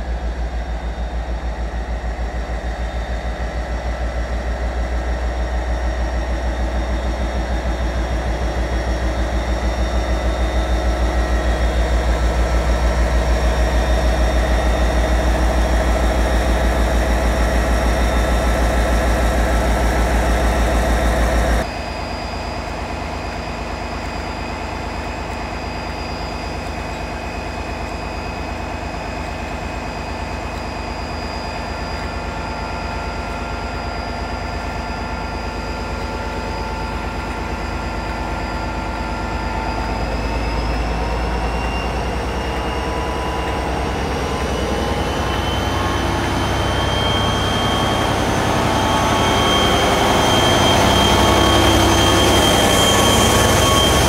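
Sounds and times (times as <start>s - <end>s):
diesel locomotive engine idling: 0.0s - 54.0s.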